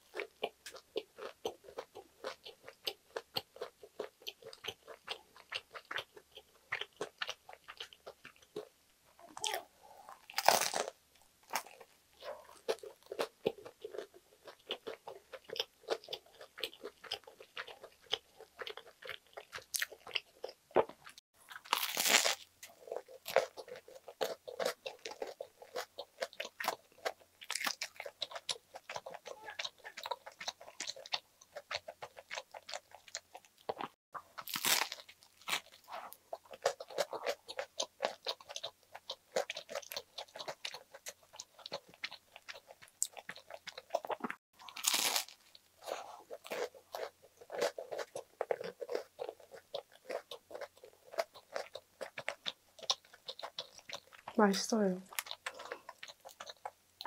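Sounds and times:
wet chewing with mouth clicks: 0.0s - 57.0s
biting into bread: 9.4s - 54.4s.

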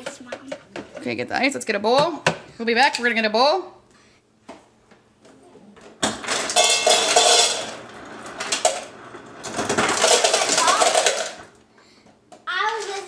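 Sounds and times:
ice cubes clattering into metal bowl: 6.0s - 11.5s.

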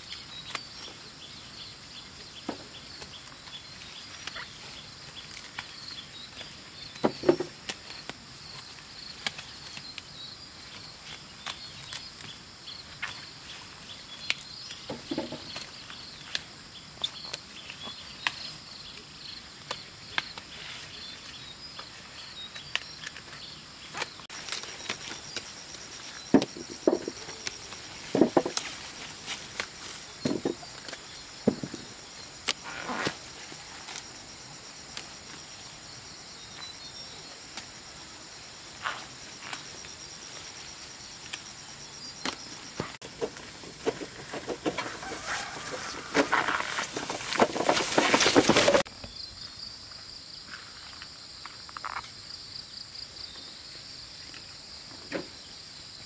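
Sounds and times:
insects chirping trill: 0.0s - 56.0s
clicks and rustles: 42.2s - 48.9s.

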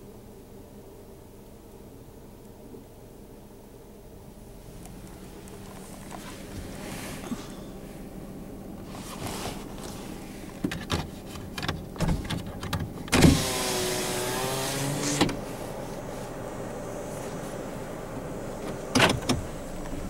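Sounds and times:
electric window motor whining: 13.1s - 20.0s.

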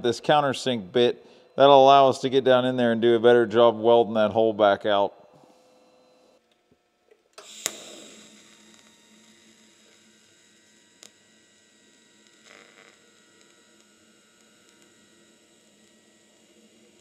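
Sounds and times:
welding arc hum and hiss: 0.0s - 17.0s
welding arc striking crack: 7.4s - 17.0s.

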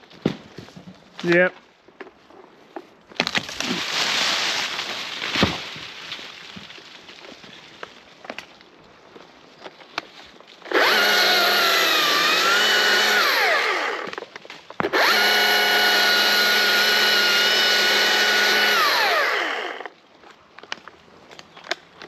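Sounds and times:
battery chainsaw running: 10.7s - 14.2s, 14.8s - 19.9s.

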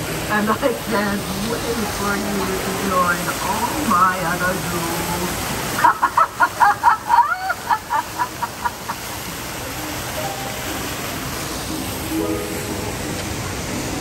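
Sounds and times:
fountain jet splashing into water: 0.0s - 14.0s
villain's cackling laugh: 5.8s - 9.0s.

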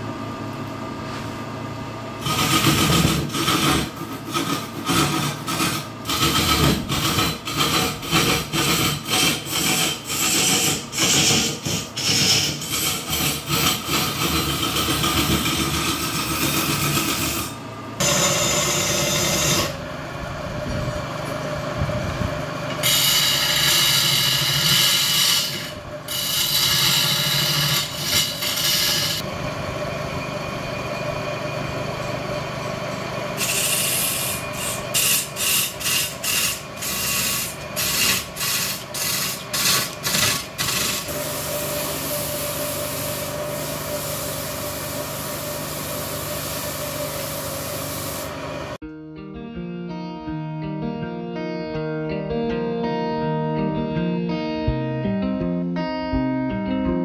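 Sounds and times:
wood scraping on a lathe: 2.2s - 19.8s, 22.6s - 29.3s, 33.3s - 48.8s.

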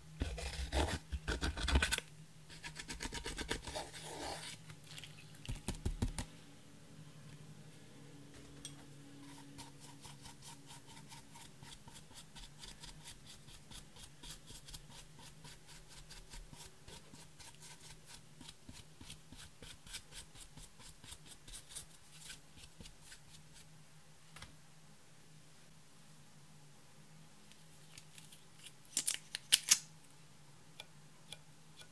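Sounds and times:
brush scraping powder: 0.2s - 5.0s, 9.2s - 23.7s.

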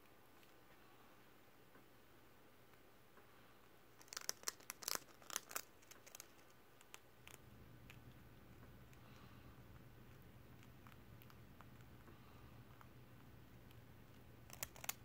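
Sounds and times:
rat crunching potato chip: 4.0s - 15.0s.

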